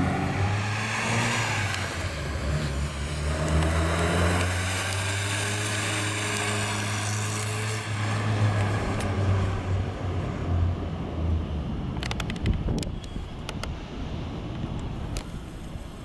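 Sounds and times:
car engine driving past: 0:00.0 - 0:09.8.

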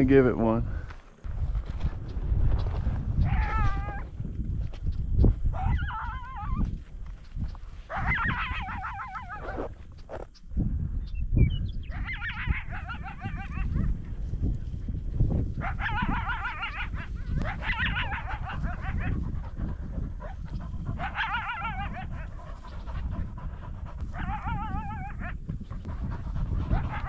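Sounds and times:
wind rumbling on microphone: 0:00.0 - 0:27.0
coyote yip-howling: 0:03.2 - 0:04.1, 0:05.5 - 0:06.8, 0:07.9 - 0:09.7, 0:11.8 - 0:13.9, 0:15.6 - 0:19.4, 0:20.2 - 0:23.2, 0:24.0 - 0:27.0.

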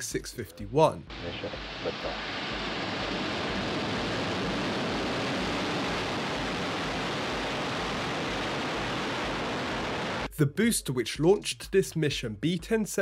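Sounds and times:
rocket engines roaring: 0:01.2 - 0:10.3.

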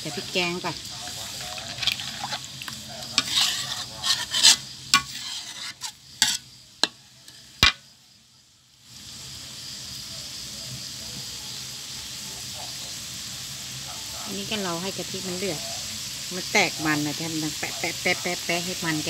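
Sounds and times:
coconut cream sizzling in pan: 0:00.0 - 0:19.0
metal turner clanking in wok: 0:01.2 - 0:06.4.

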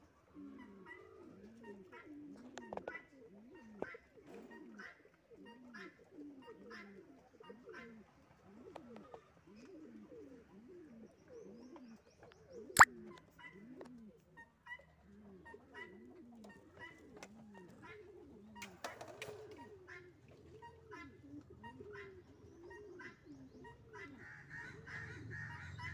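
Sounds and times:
pigeons cooing: 0:00.0 - 0:25.9.

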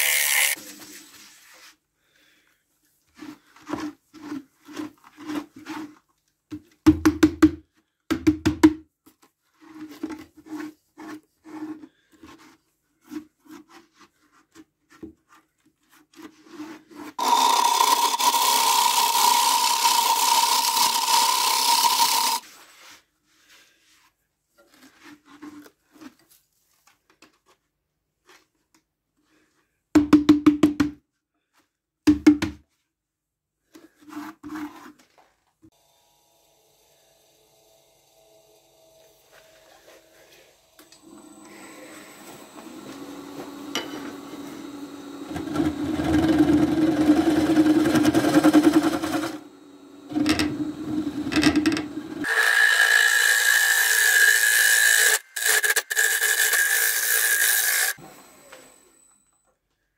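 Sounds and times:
lathe tool cutting wood: 0:00.0 - 0:00.6, 0:17.2 - 0:22.4, 0:35.8 - 0:58.9.

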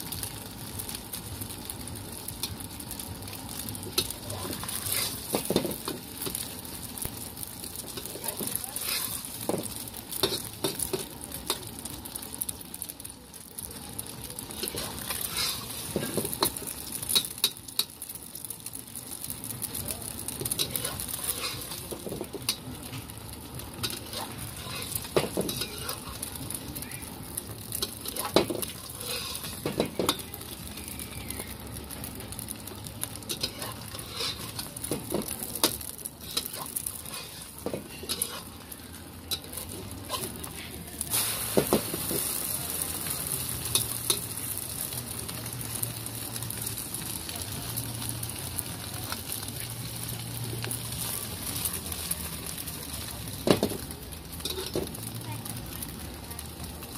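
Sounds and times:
omelette sizzling in oil: 0:00.0 - 0:56.9
metal spatula scraping a pan: 0:04.0 - 0:06.4, 0:08.0 - 0:09.4, 0:14.6 - 0:17.4, 0:20.5 - 0:23.0, 0:23.8 - 0:26.5, 0:27.8 - 0:30.3, 0:33.3 - 0:38.6.

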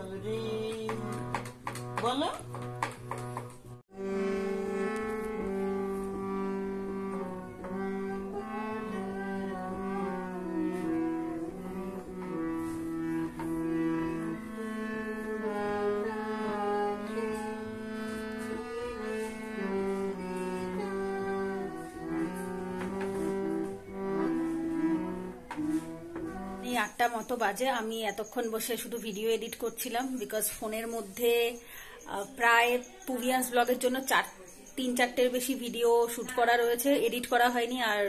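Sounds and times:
harmonium playing slow melody: 0:00.0 - 0:27.0.

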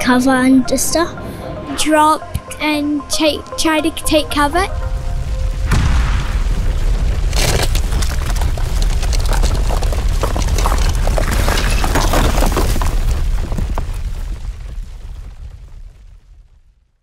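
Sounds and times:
deep continuous rumble: 0:00.0 - 0:16.7
loud crash: 0:04.8 - 0:08.8
cracking and crumbling: 0:04.9 - 0:16.1
debris shattering: 0:05.6 - 0:14.7.

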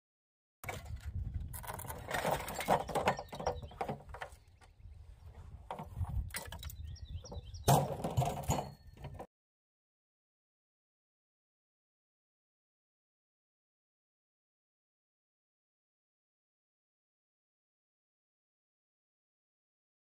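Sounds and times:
metal parts clattering: 0:00.6 - 0:04.1.

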